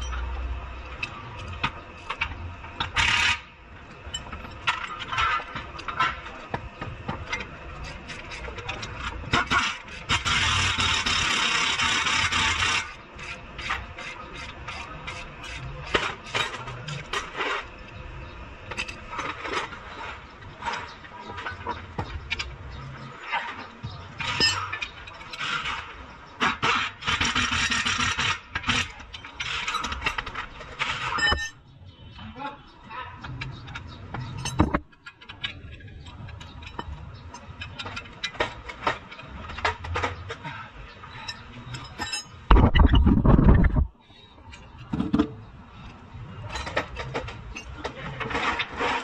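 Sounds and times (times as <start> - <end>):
metal tools clinking: 33.4 - 35.5, 41.2 - 42.5.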